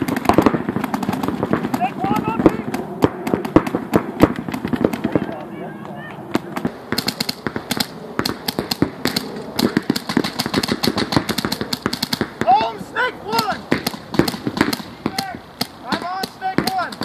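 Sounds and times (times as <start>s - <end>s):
paintball markers firing: 0.0s - 17.0s
player shouting: 1.8s - 2.7s, 12.4s - 13.7s, 15.0s - 17.0s.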